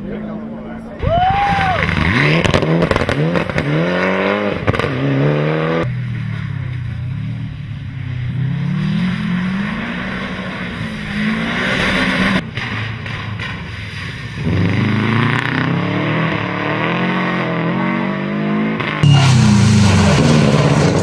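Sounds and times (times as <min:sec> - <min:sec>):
rally car accelerating: 0:01.5 - 0:21.0
rally car engine revving: 0:01.6 - 0:21.0.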